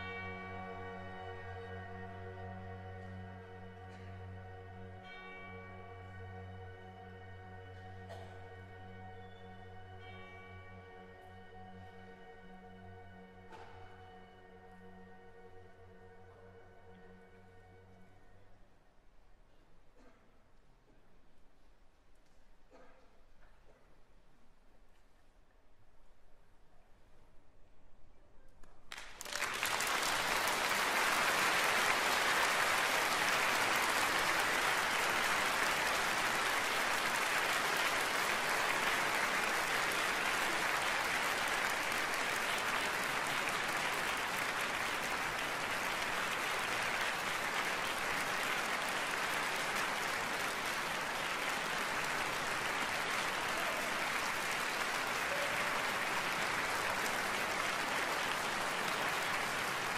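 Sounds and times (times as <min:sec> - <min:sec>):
audience applauding: 0:00.0 - 0:00.7, 0:28.9 - 0:59.9.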